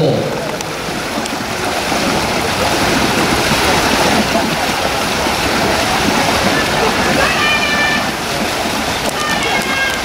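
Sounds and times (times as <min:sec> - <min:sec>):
pool water rushing and lapping: 0:00.0 - 0:10.0
faint clicks: 0:09.0 - 0:10.0.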